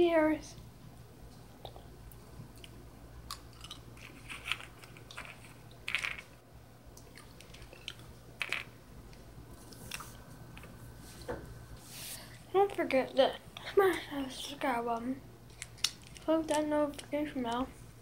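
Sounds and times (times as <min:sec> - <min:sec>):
steady low hum: 0:00.0 - 0:18.0
person chewing crunchy candies: 0:02.5 - 0:06.2, 0:07.0 - 0:08.2.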